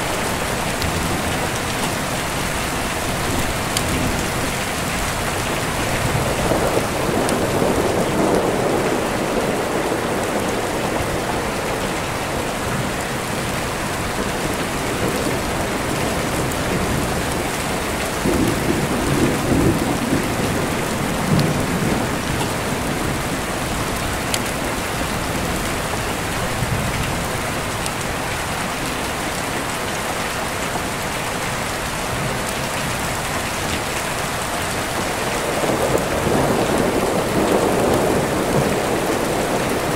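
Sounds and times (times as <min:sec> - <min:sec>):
steady rain: 0:00.0 - 0:39.9
deep rolling thunder: 0:03.4 - 0:12.0, 0:14.2 - 0:25.6, 0:34.9 - 0:39.9.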